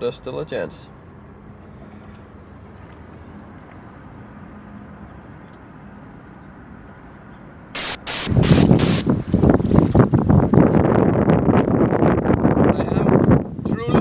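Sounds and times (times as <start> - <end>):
outdoor background rumble: 0.0 - 7.7
wind hitting microphone: 8.3 - 14.0.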